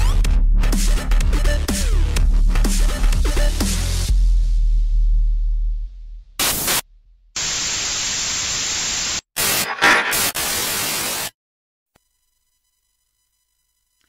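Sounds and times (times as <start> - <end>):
static hiss bursts: 6.4 - 6.8, 7.4 - 11.3.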